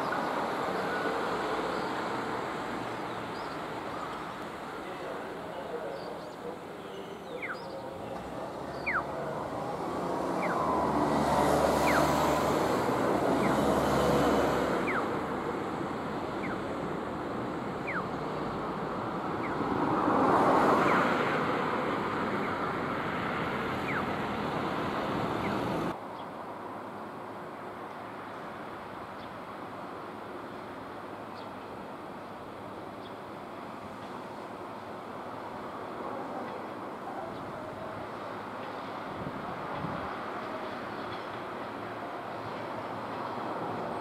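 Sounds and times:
vehicle passing rumble: 0.0 - 26.0
steady outdoor hum: 0.0 - 44.0.

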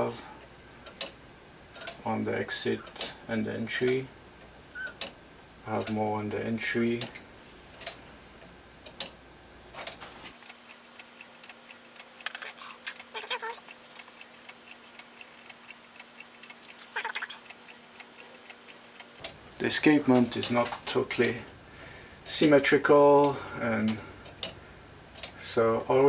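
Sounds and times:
pendulum clock ticking: 0.8 - 2.1, 10.4 - 19.4.

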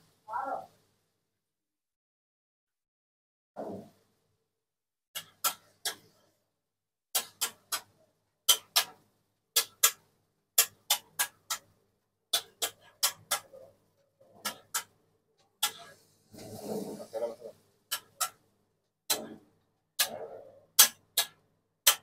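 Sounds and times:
metal spatula scraping griddle: 15.7 - 17.5.

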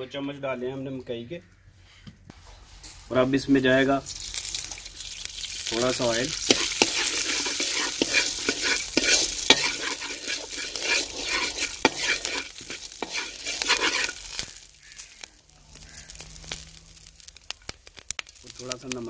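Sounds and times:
popcorn kernels rattling in pan: 3.7 - 19.0
metal spoon scraping a pan: 5.5 - 17.3.

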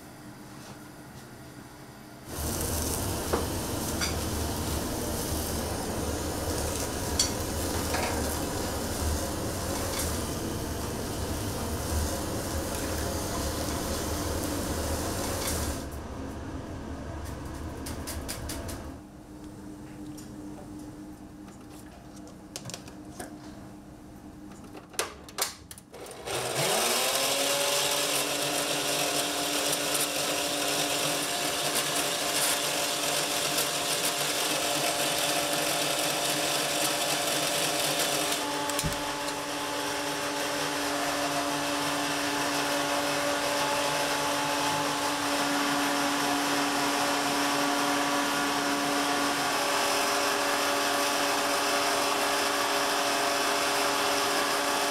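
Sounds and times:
electric stand mixer whisking: 2.3 - 15.9, 26.0 - 54.9.

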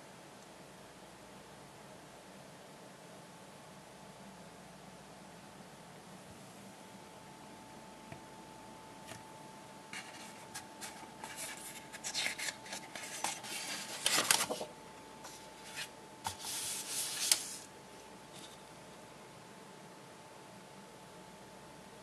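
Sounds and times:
paper sheets sliding and rustling: 9.9 - 17.7.

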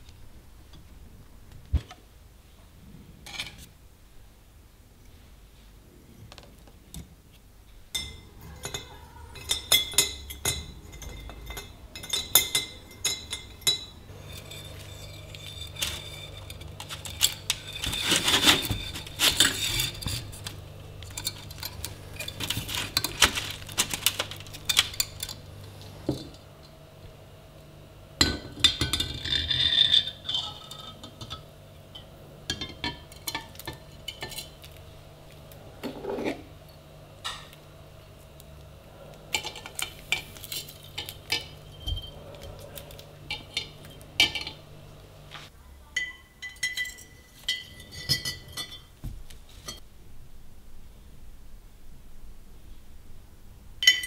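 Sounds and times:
low steady hum: 0.0 - 54.0
metal parts clinking and scraping: 8.5 - 26.4, 39.3 - 44.6.

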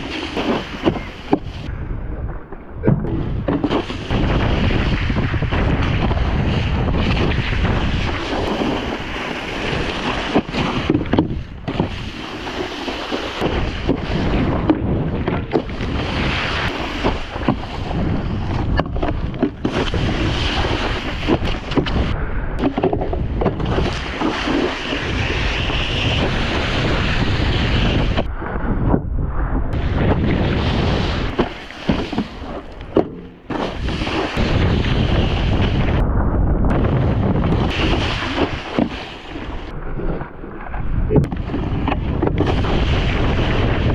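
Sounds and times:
wind buffeting microphone: 0.0 - 43.9
water spraying off wakeboard: 15.6 - 18.0, 23.6 - 28.3, 33.4 - 36.0, 37.6 - 39.7.

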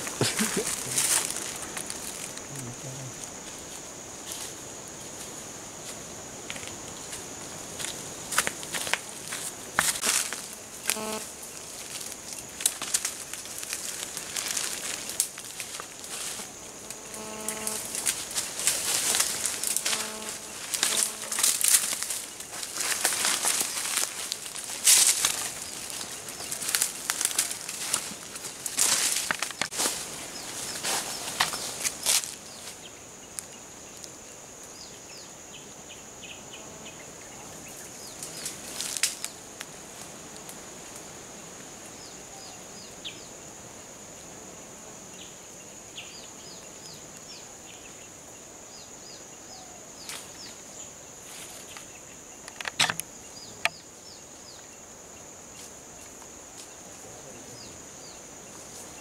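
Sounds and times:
insect drone: 0.0 - 59.0.

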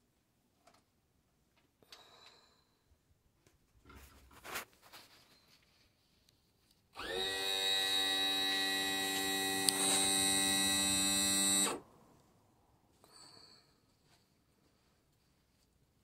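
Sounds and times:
small electric motor humming: 7.0 - 11.8.

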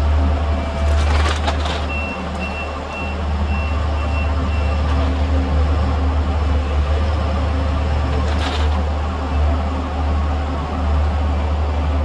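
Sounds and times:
diesel engine running: 0.0 - 12.0
reversing alarm beeps: 1.9 - 4.9.

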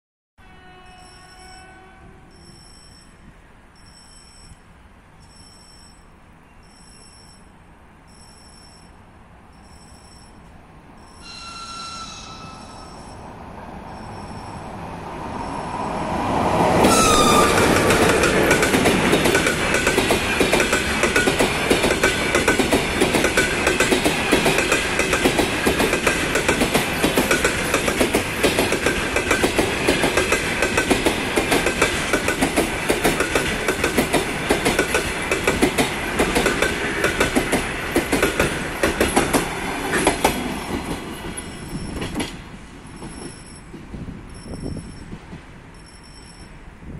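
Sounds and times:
electric locomotive passing: 0.4 - 46.9
high ringing: 9.6 - 14.7, 45.7 - 46.6
brief falling tone: 11.0 - 14.7, 16.8 - 18.2
wheels clicking over rail joints: 16.8 - 46.5.

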